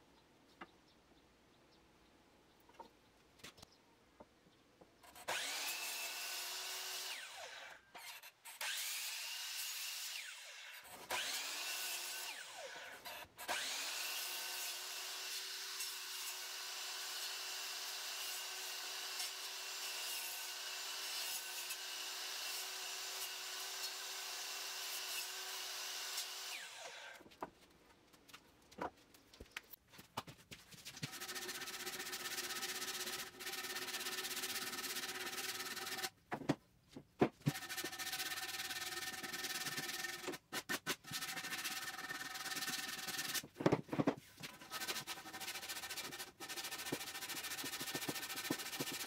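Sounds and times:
miter saw whining and cutting wood: 5.1s - 27.2s.

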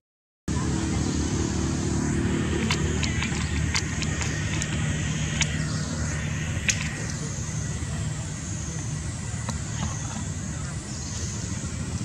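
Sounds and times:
low motor hum: 0.5s - 12.0s
sharp clicks: 2.6s - 5.6s, 6.6s - 7.2s.

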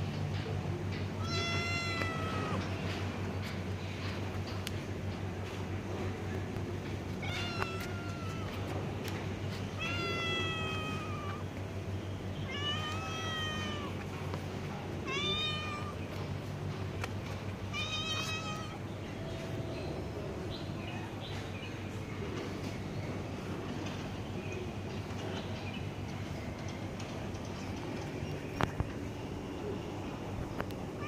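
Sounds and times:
cat meowing: 1.2s - 2.7s, 7.2s - 8.8s, 9.8s - 11.5s, 12.4s - 14.0s, 15.0s - 16.0s, 17.7s - 18.8s.

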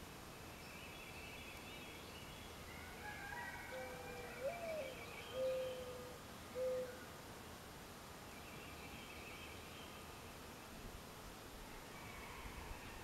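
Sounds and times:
birds singing faintly: 0.0s - 7.2s, 8.1s - 13.0s
dove cooing: 3.7s - 7.0s.

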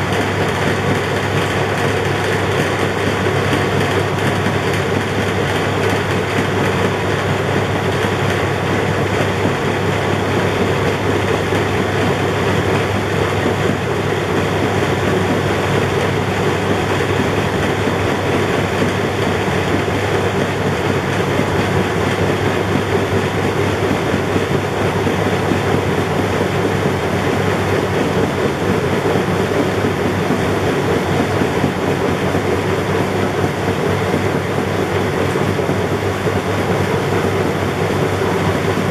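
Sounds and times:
washing machine running: 0.0s - 38.9s.

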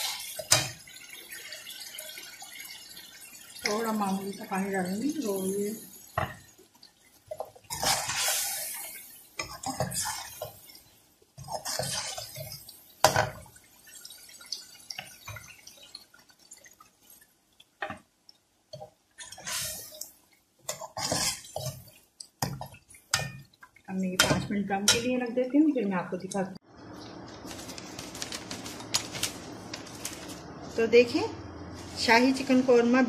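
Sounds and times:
water hissing in hot pan: 0.0s - 17.3s, 19.2s - 23.4s
metal spoon scraping pan: 11.4s - 12.5s, 20.7s - 21.9s.

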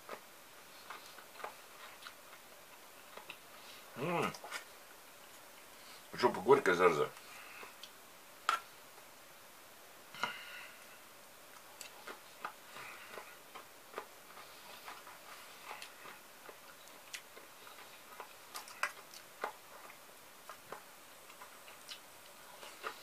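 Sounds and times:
chewing crisp cucumber: 0.0s - 4.7s, 11.5s - 23.0s.

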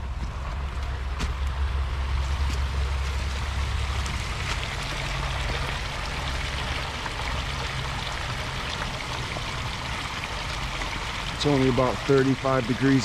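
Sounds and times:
low rumble: 0.0s - 11.4s
stream trickling over rocks: 1.4s - 13.0s.

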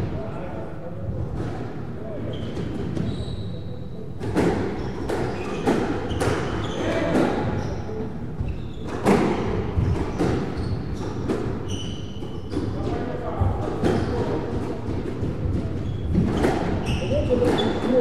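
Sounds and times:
shoes squeaking on wooden floor: 2.3s - 3.6s, 4.6s - 12.9s, 13.8s - 18.0s
squash ball struck by rackets: 13.8s - 18.0s.

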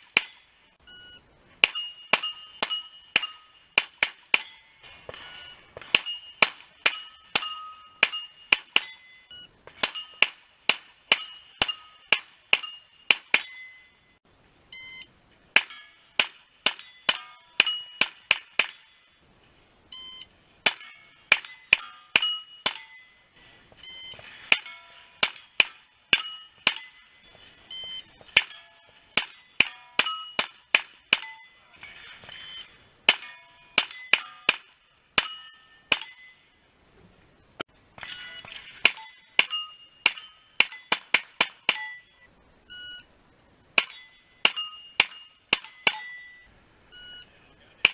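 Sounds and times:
steel plates ringing: 0.0s - 14.2s, 15.5s - 19.3s, 20.0s - 36.8s, 38.0s - 42.4s, 43.7s - 47.9s
shot timer beep: 0.8s - 3.6s, 14.7s - 15.1s, 19.9s - 20.3s, 23.8s - 24.2s, 27.7s - 28.2s, 32.3s - 32.8s, 42.7s - 43.1s, 46.2s - 47.4s.

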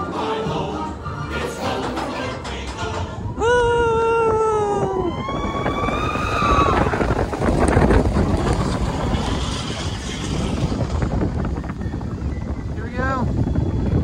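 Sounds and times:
roller coaster rumbling on track: 0.0s - 14.0s
wind on microphone: 2.2s - 14.0s
riders screaming: 4.8s - 7.2s.

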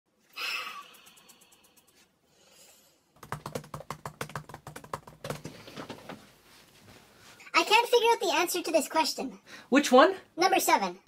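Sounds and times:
fast typing on laptop keyboard: 3.2s - 5.9s.

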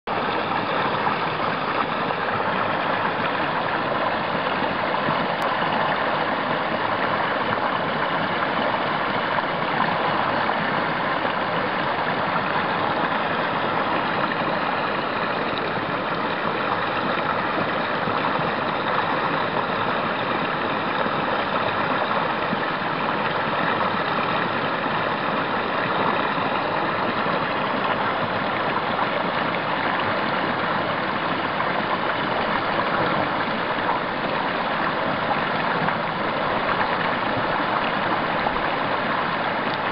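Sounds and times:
stream rushing: 0.1s - 39.9s.

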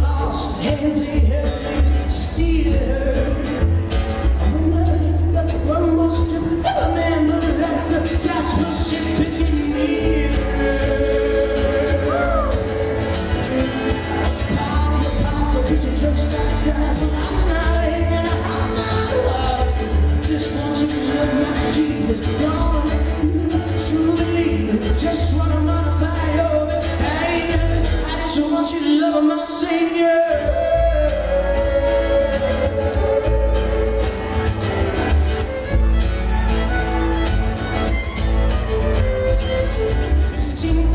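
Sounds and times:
upright bass: 0.0s - 28.7s, 30.1s - 40.9s
man singing: 0.0s - 34.6s, 40.2s - 40.9s
strummed acoustic guitar: 0.0s - 40.9s
fiddle: 31.1s - 40.9s.

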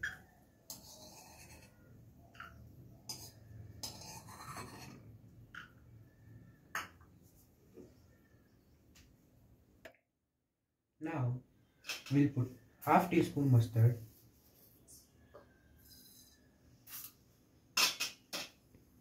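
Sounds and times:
spoon clinking on steel bowls: 0.0s - 5.0s.

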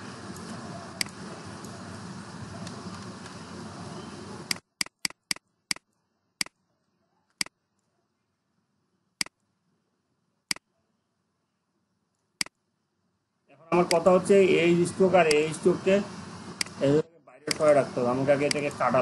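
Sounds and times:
background hiss: 0.0s - 19.0s
computer mouse clicking: 0.3s - 1.7s, 4.5s - 6.6s, 7.3s - 8.0s, 12.1s - 12.6s, 17.5s - 17.7s, 18.4s - 18.7s.

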